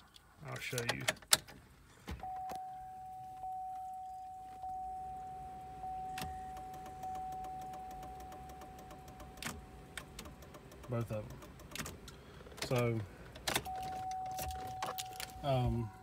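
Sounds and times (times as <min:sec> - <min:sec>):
dashboard warning chime: 0:02.2 - 0:11.0, 0:13.6 - 0:16.0
flasher relay ticking fast: 0:06.7 - 0:11.8.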